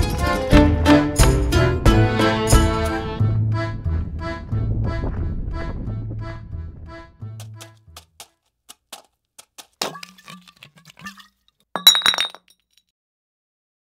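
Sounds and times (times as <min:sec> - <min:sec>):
background music: 0:00.0 - 0:08.0
hard objects clinking: 0:08.8 - 0:12.6.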